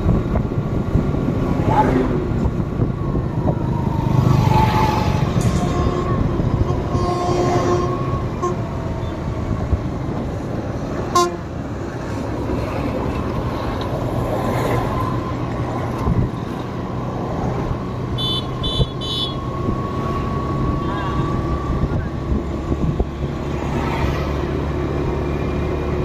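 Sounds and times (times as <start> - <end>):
vehicle driving on highway: 0.0 - 26.0
vehicle horn honking: 5.4 - 8.6, 11.1 - 11.4, 18.2 - 19.4.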